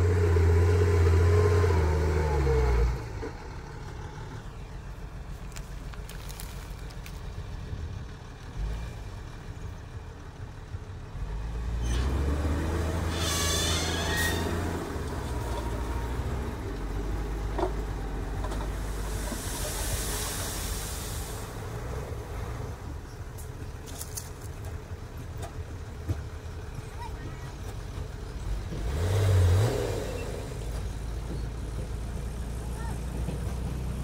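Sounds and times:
diesel truck engine running: 0.0s - 34.0s
high squeal: 13.0s - 14.8s
hiss of released air: 18.8s - 21.9s.

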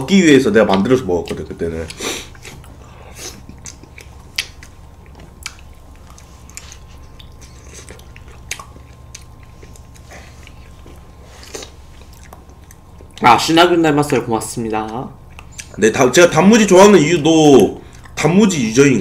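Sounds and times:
low hum: 0.0s - 19.0s
mouth and lip eating sounds: 0.8s - 13.3s, 13.9s - 15.8s.

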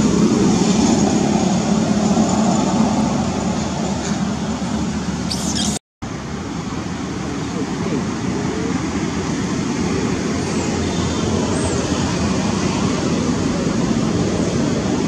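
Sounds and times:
faint high whistles: 5.3s - 5.8s.

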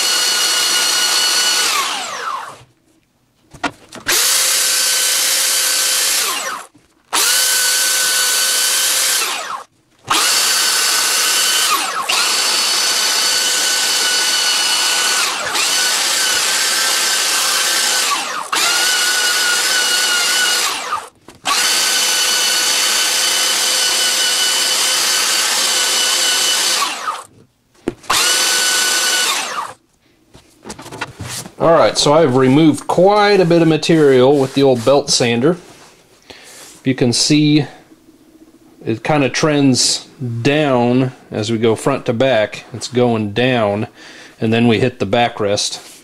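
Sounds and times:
belt sander whining: 0.0s - 2.7s, 3.9s - 27.3s, 28.0s - 29.8s, 31.8s - 35.7s.

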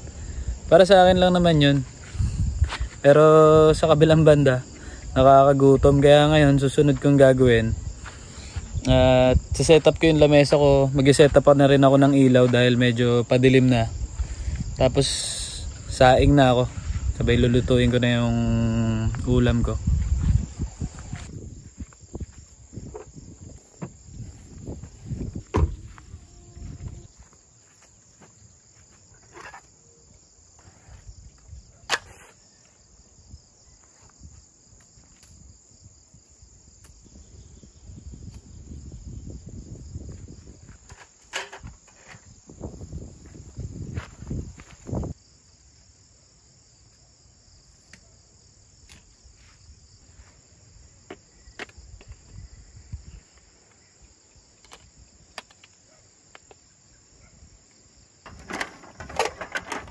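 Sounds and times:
crickets and insects chirring: 0.0s - 59.9s
camp table clicks and knocks: 40.8s - 42.3s, 54.6s - 56.6s, 58.2s - 59.9s.

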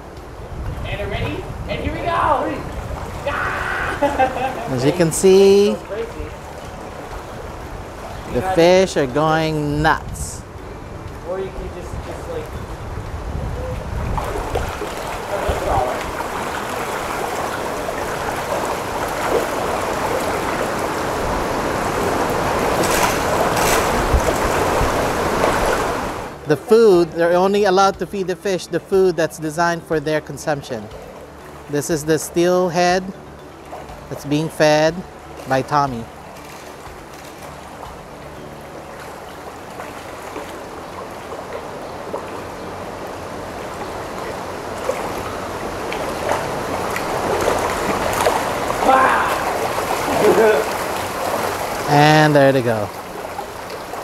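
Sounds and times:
fish thrashing and splashing: 14.2s - 21.2s, 21.8s - 26.0s, 43.8s - 52.0s.

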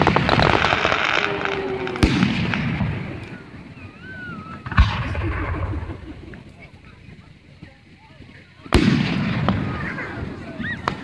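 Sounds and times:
firework booms: 0.0s - 6.5s, 8.7s - 11.0s
firework crackling: 0.0s - 11.0s.

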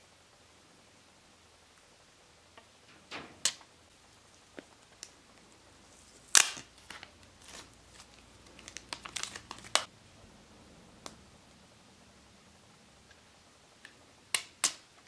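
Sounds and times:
plastic film crackling as peeled: 5.9s - 9.9s.

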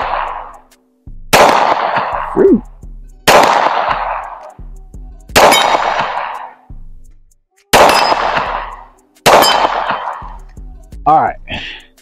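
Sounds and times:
pistol shots with echo: 0.0s - 0.6s, 1.3s - 2.4s, 3.3s - 4.4s, 5.4s - 6.6s, 7.8s - 10.4s
bullets ringing on steel target: 5.4s - 6.4s, 7.8s - 10.3s.

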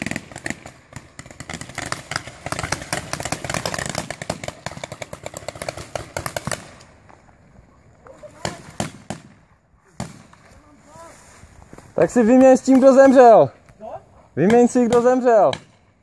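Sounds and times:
paintball markers firing: 0.0s - 6.9s, 14.4s - 15.9s.

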